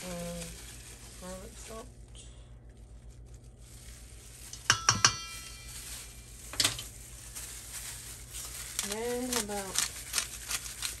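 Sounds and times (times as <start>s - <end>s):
knocks on a metal bowl: 4.7s - 5.3s.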